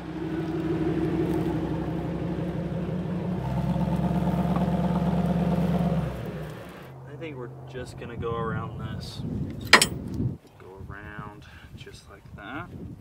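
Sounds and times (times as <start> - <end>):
vehicle engine running: 0.0 - 8.2.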